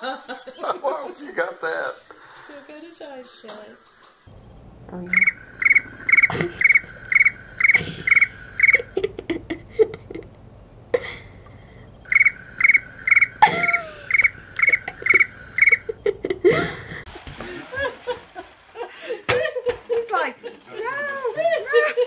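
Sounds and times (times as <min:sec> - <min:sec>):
electronic trilled chirps: 0:04.3 - 0:09.6, 0:11.0 - 0:16.3.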